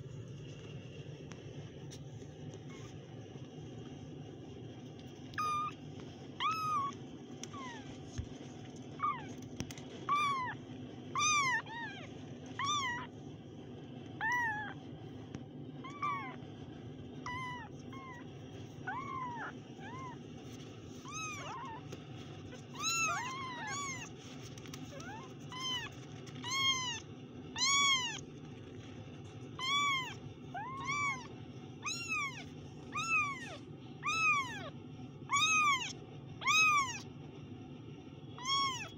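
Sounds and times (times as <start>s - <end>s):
kittens mewing: 6.4s - 7.9s, 8.9s - 13.1s, 14.2s - 14.8s, 15.8s - 16.4s, 17.2s - 20.2s, 21.0s - 27.0s, 27.6s - 28.3s, 29.6s - 37.1s, 38.4s - 38.9s.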